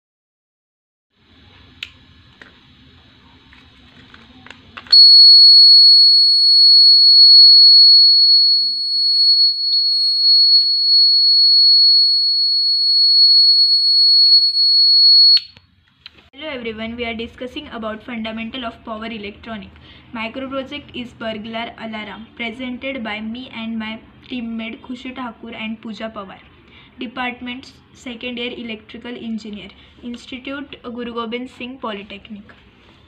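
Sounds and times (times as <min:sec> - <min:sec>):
high-pitched buzzer tone: 0:04.9 - 0:15.5.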